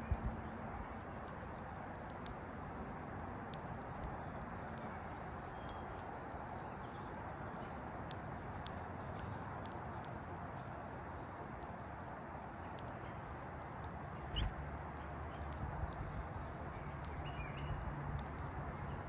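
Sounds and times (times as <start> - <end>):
finch chirps: 14.1 - 19.0.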